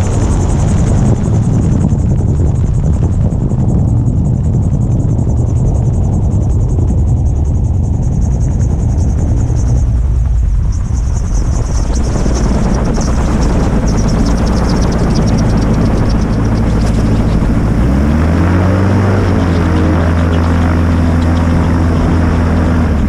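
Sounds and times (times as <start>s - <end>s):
gyroplane engine and propeller: 0.0s - 23.0s.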